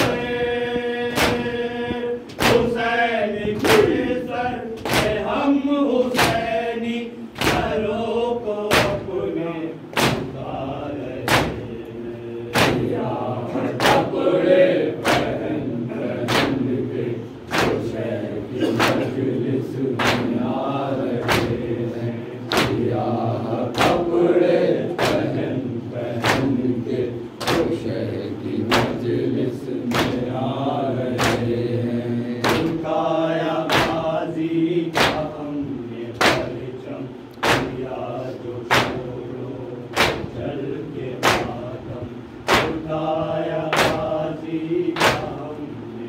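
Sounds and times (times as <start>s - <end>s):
voices chanting a lament: 0.0s - 46.0s
chest slapping in unison: 1.1s - 1.6s, 2.3s - 2.8s, 4.8s - 5.4s, 6.1s - 6.5s, 7.4s - 7.9s, 8.7s - 9.2s, 9.9s - 10.5s, 11.2s - 11.8s, 12.5s - 13.0s, 15.0s - 15.5s, 16.2s - 16.7s, 17.5s - 19.2s, 20.0s - 20.5s, 21.1s - 21.8s, 22.4s - 23.0s, 23.7s - 24.1s, 24.8s - 25.4s, 26.2s - 26.7s, 27.3s - 27.8s, 28.6s - 29.1s, 29.8s - 30.3s, 32.4s - 32.8s, 33.6s - 34.1s, 34.9s - 35.3s, 36.2s - 36.6s, 37.4s - 37.9s, 38.7s - 39.1s, 39.9s - 40.5s, 41.2s - 41.7s, 42.4s - 42.9s, 43.7s - 44.1s, 45.0s - 45.4s.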